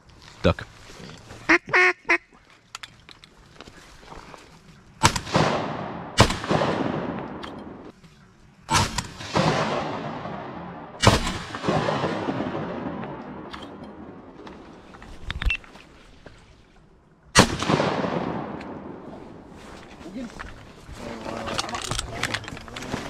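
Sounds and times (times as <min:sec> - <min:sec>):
shotgun shots echoing: 0:05.0 - 0:07.9, 0:08.7 - 0:14.4, 0:17.4 - 0:19.4.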